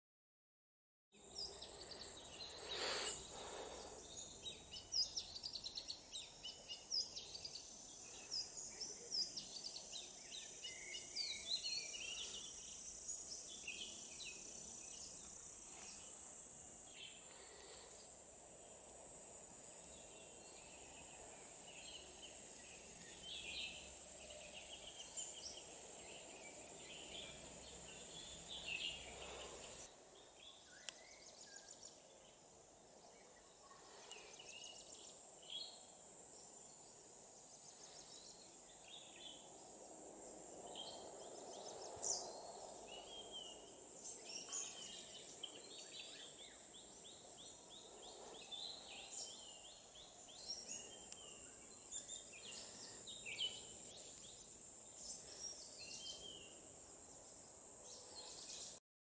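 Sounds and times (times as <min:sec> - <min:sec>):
faint high hiss: 0:01.2 - 0:58.8
birds chirping and calling: 0:01.4 - 0:05.2.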